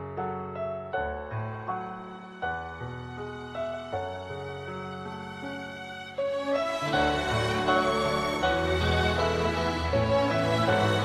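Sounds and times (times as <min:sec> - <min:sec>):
slow sad instrumental music: 0:00.0 - 0:11.0.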